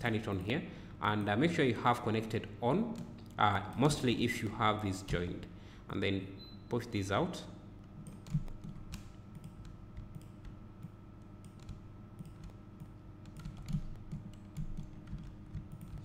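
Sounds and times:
faint steady hum: 0:00.0 - 0:16.0
keyboard and mouse clicks: 0:08.0 - 0:16.0.

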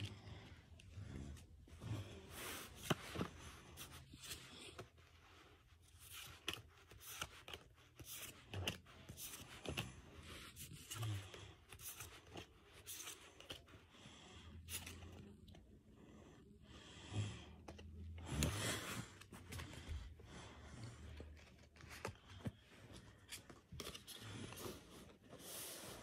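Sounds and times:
trading cards rustling: 0:02.2 - 0:13.8, 0:20.9 - 0:26.0.

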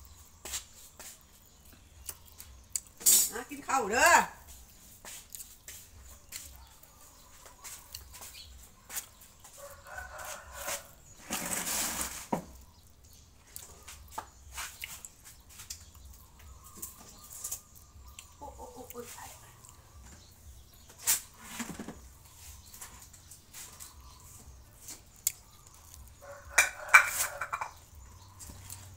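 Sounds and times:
chickens cackling: 0:06.1 - 0:14.1, 0:15.8 - 0:28.9.

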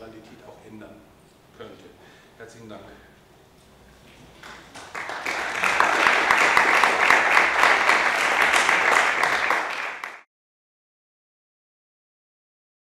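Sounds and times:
audience applauding: 0:04.4 - 0:10.3.

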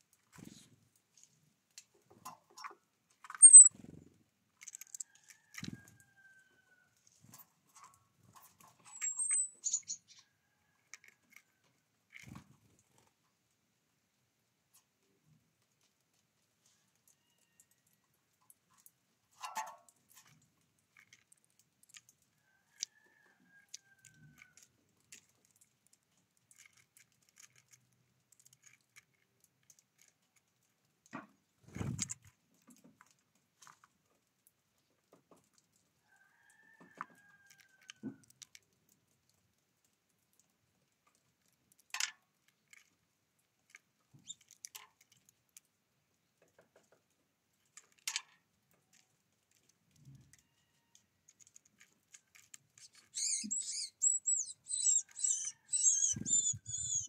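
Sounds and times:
rapid high bird chirps: 0:03.4 - 0:03.7, 0:08.9 - 0:10.2, 0:52.8 - 0:57.0.

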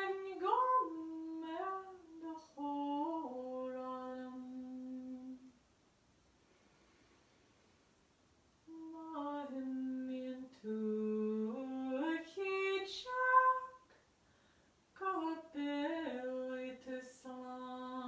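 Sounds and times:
woman singing unaccompanied: 0:00.0 - 0:05.6, 0:08.6 - 0:14.0, 0:15.0 - 0:18.0.

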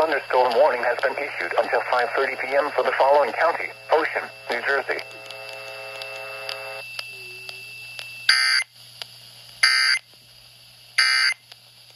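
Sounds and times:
harsh screeching data bursts: 0:00.0 - 0:07.7
steady buzzing tone: 0:00.0 - 0:08.8.

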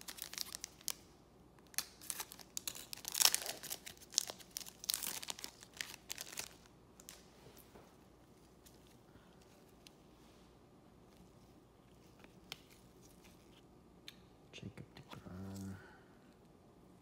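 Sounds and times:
foil wrapper tearing and crinkling: 0:00.0 - 0:01.0, 0:01.7 - 0:07.2.

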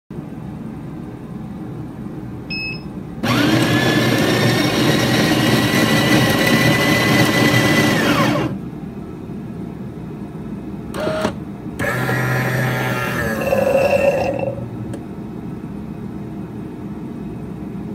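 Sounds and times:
low steady machine hum: 0:00.1 - 0:17.9
coffee grinder motor whine: 0:03.2 - 0:08.6, 0:11.0 - 0:14.6.

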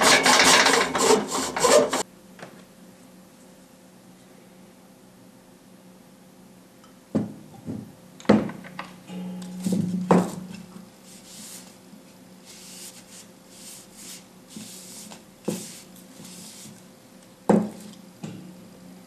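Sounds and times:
faint steady hum: 0:02.0 - 0:19.0
cloth rubbing wooden bowl: 0:11.0 - 0:11.8, 0:12.4 - 0:16.8.

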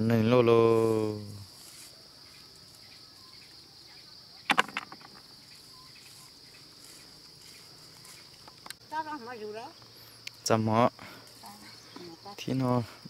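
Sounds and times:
insects chirring: 0:00.0 - 0:13.0
sharp knocks: 0:04.5 - 0:05.2.

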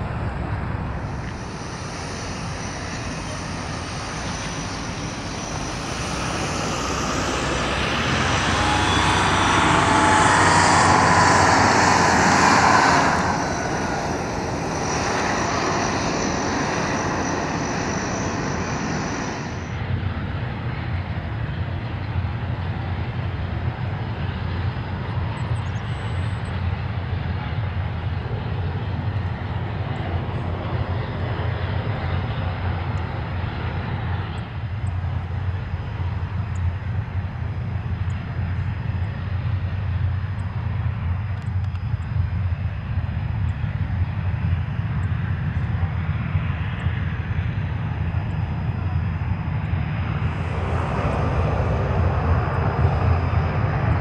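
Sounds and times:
propeller engines low throb: 0:00.0 - 0:54.0.

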